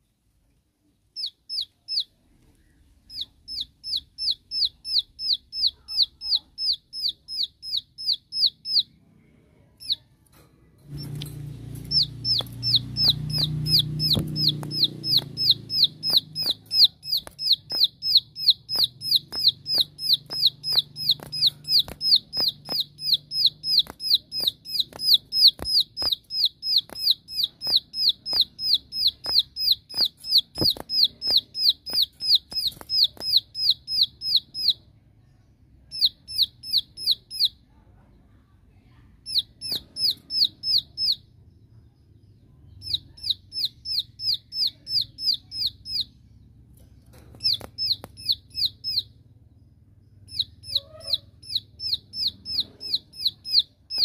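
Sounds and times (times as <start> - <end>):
bird rapid sharp call notes: 11.8 - 34.8
wing-snap clicks: 18.5 - 33.4.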